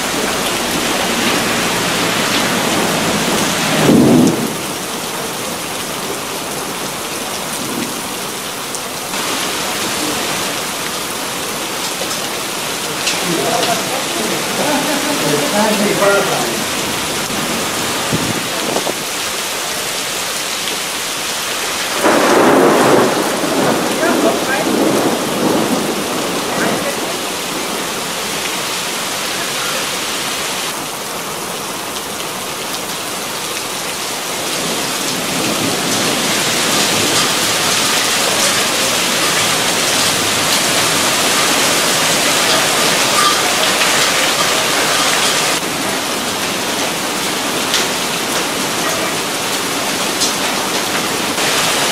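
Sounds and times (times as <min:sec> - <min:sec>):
heavy rain pouring: 0:00.0 - 0:51.9
rumble of thunder: 0:00.7 - 0:04.9, 0:22.0 - 0:28.0.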